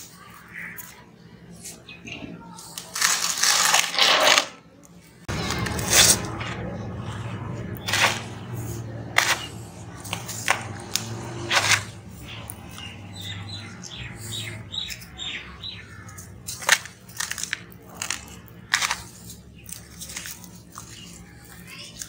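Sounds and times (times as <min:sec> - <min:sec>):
steady low hum: 0:04.5 - 0:21.9
bird chirping: 0:07.6 - 0:16.7
sand-cement chunks crumbling in hands: 0:16.0 - 0:22.0.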